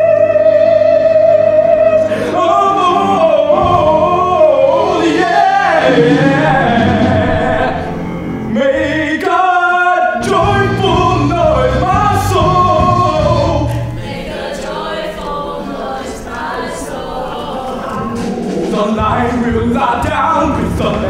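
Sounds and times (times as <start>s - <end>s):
group singing a show tune: 0.0s - 21.0s
instrumental accompaniment: 0.0s - 21.0s.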